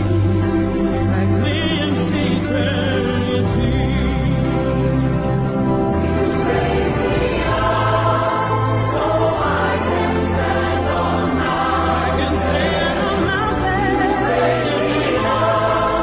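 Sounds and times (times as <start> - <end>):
choir singing: 0.0 - 16.0.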